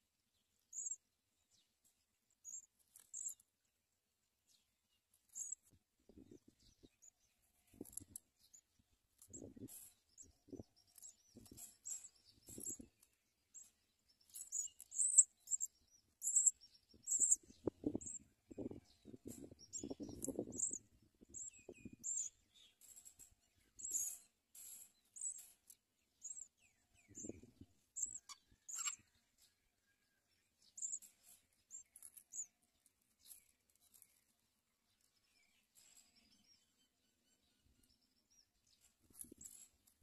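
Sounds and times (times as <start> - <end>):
high-pitched bird chirps: 0.8 - 1.0, 14.3 - 22.4, 23.8 - 24.2, 26.2 - 29.1.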